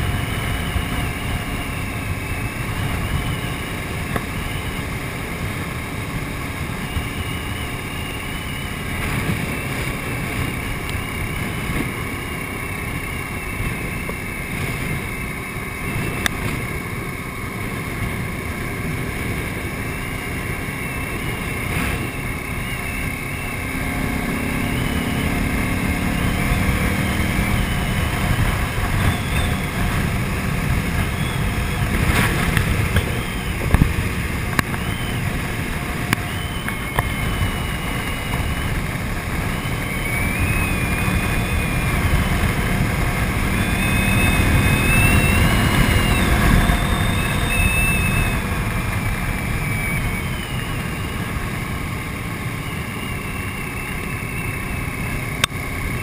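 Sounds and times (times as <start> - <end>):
motorcycle engine running: 0.0 - 56.0
wind rushing over microphone: 0.0 - 56.0.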